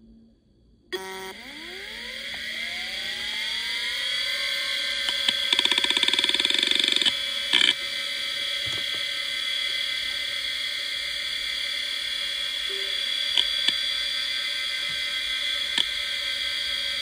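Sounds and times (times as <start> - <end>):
hard drive whine: 0.0 - 17.0
hard drive head seek rattle: 4.4 - 10.1.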